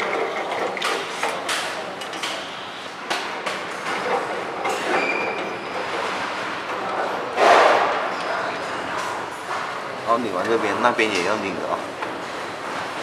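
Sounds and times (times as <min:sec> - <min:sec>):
knocks and clanks: 0:03.1 - 0:08.2.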